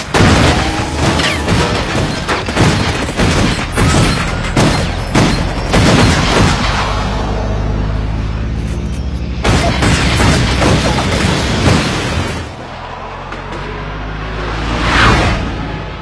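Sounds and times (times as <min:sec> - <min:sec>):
rifles and pistols firing: 0:00.0 - 0:06.8.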